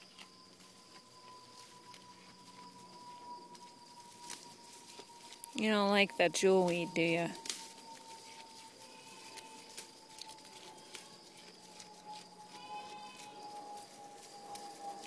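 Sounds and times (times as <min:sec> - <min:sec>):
goat chewing plants: 0:00.0 - 0:15.0
leaves rustling: 0:03.1 - 0:15.0.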